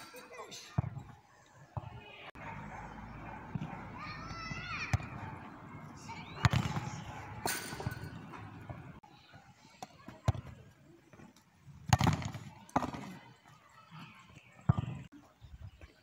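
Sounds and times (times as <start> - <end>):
ball kick thuds: 3.4 - 5.4, 6.2 - 9.0, 11.9 - 13.2.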